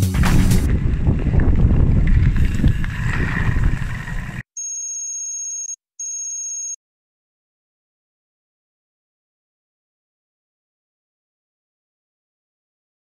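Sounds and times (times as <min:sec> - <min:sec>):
bike riding on gravel: 0:00.1 - 0:04.4
wind rumble on microphone: 0:00.2 - 0:04.4
electronic telephone-style ringing: 0:04.6 - 0:06.8.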